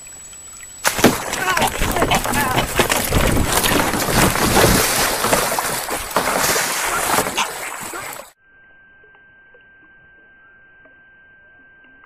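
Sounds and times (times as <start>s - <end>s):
water splashing around kayak: 0.8s - 8.4s
faint high-pitched tone: 8.4s - 12.0s.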